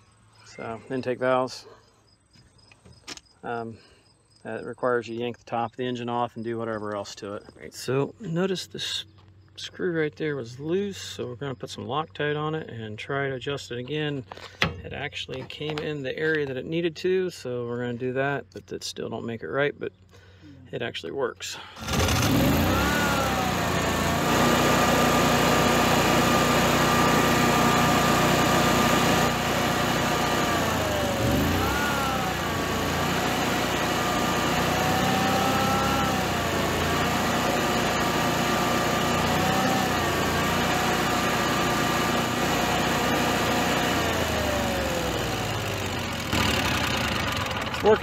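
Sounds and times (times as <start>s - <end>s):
generator engine running: 21.6s - 48.0s.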